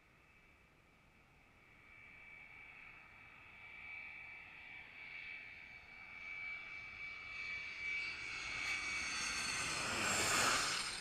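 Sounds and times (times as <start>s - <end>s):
jet airliner engines whining: 2.5s - 11.0s.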